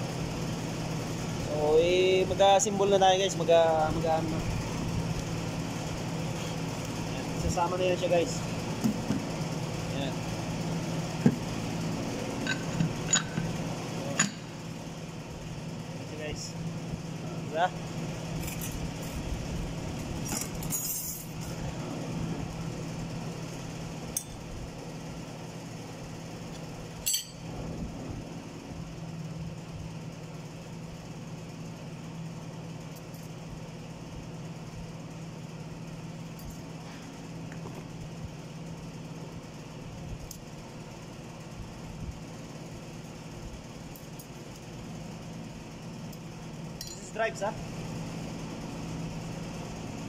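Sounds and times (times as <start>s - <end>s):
low workshop hum: 0.0s - 50.0s
metallic clinks of metal parts: 12.4s - 13.5s, 20.2s - 21.5s, 27.0s - 27.4s, 46.8s - 47.2s.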